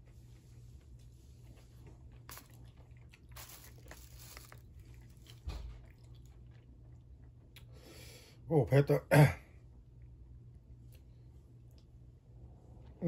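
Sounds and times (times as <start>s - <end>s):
person chewing: 0.0s - 7.8s.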